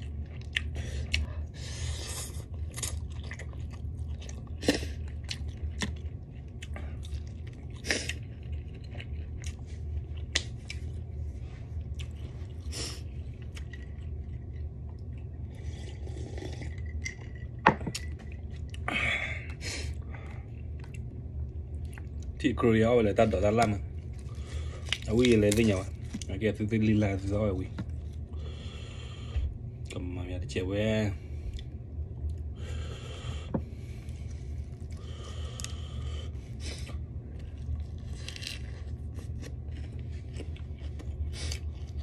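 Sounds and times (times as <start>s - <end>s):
close chewing of noodles: 0.0s - 17.5s, 31.5s - 42.0s
steady low hum: 0.0s - 42.0s.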